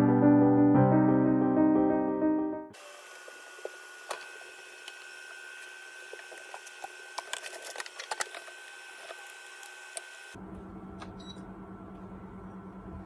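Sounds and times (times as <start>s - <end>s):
microwave oven humming: 2.8s - 13.0s.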